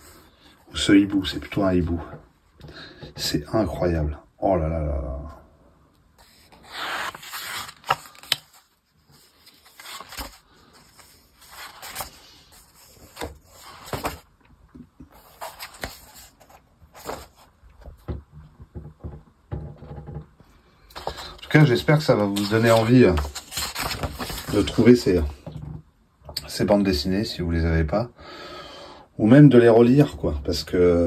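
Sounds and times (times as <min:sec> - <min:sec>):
book pages turning: 0:06.2 - 0:14.3, 0:15.0 - 0:18.0, 0:20.9 - 0:25.3.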